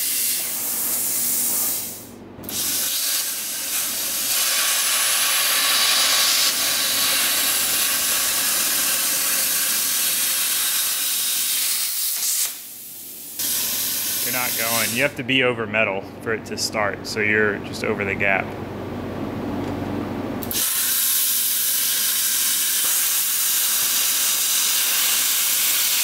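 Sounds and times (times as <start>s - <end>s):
plasma cutter hissing: 0.0s - 15.1s, 20.4s - 26.0s.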